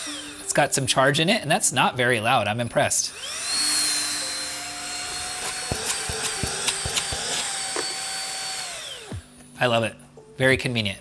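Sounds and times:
vacuum motor whine: 0.0s - 0.5s, 3.1s - 9.5s.

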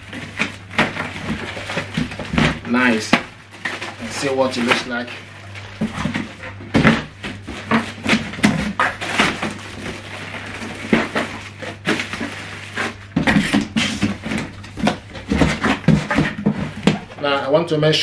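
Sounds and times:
plastic wrapping crinkling: 0.0s - 17.4s
cardboard box scraping and knocking: 5.7s - 17.2s.

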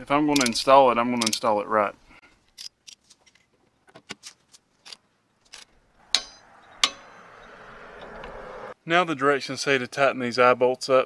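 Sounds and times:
metal hand tools clinking: 0.3s - 0.6s, 4.8s - 7.2s.

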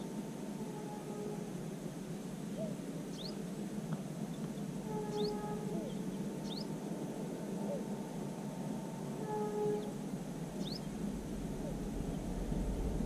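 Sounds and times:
steady background hiss: 0.0s - 13.0s
high rising bird chirps: 3.1s - 3.4s, 5.1s - 6.7s, 10.6s - 11.0s.

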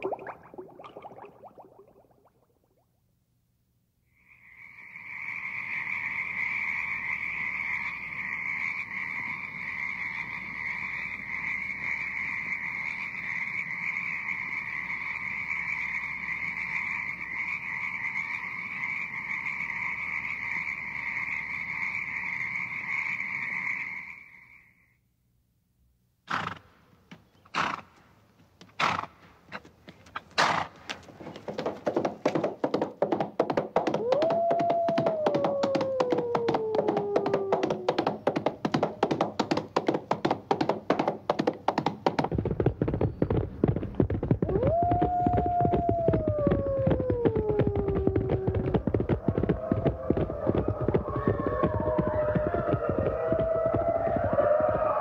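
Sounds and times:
frog chorus croaking: 4.2s - 24.9s
sharp knocks: 31.5s - 44.8s.

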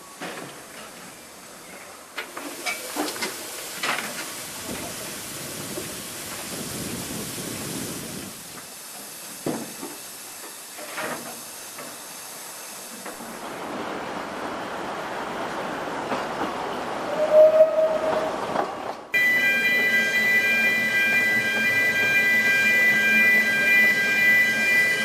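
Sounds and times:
steam locomotive hissing: 0.0s - 13.9s.

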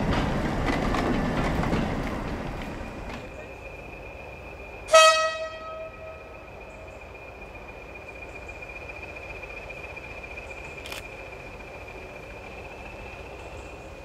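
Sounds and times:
locomotive horn: 4.9s - 6.5s.

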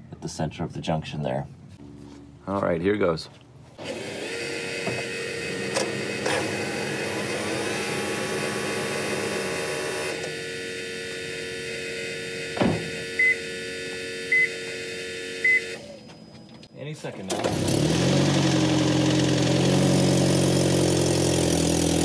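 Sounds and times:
car clunk: 12.5s - 13.1s.

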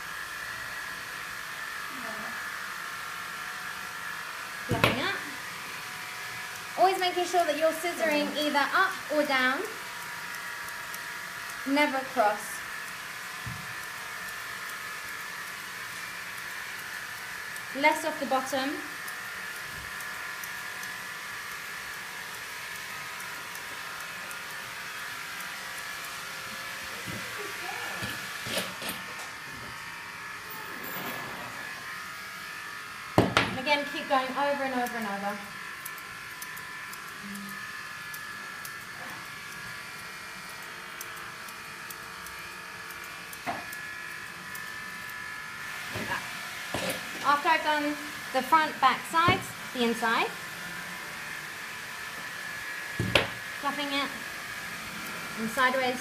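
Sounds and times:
electric motor whirring: 0.0s - 56.0s
steady electric hum: 4.6s - 56.0s
scissors snipping hair: 6.4s - 29.3s, 33.0s - 47.6s
scissors snipping: 35.8s - 43.8s.

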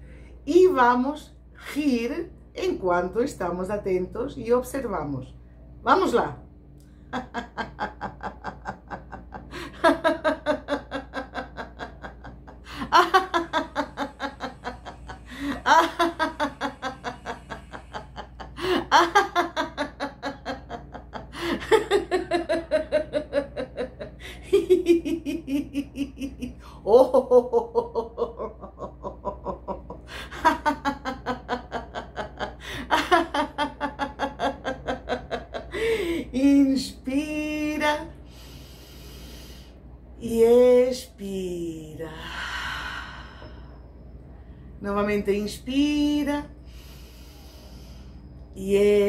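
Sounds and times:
woman breathing: 0.0s - 0.4s, 9.4s - 9.8s, 12.6s - 13.0s, 14.1s - 15.7s, 16.6s - 19.4s, 21.2s - 21.7s, 24.1s - 24.5s, 26.5s - 26.9s, 32.5s - 32.9s, 35.6s - 36.4s, 38.1s - 40.1s, 42.0s - 44.8s, 46.5s - 48.6s
woman laughing: 7.0s - 38.0s.

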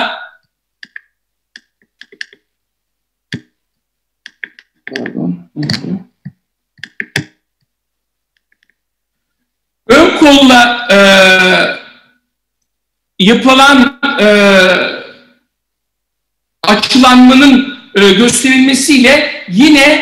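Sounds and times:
mouse and keyboard clicks: 0.8s - 2.5s, 3.3s - 3.5s, 4.2s - 7.7s, 8.3s - 8.8s.

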